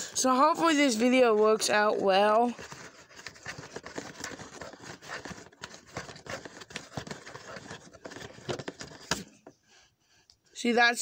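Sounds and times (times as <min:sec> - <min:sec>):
hands scraping on cardboard: 0:02.3 - 0:09.2.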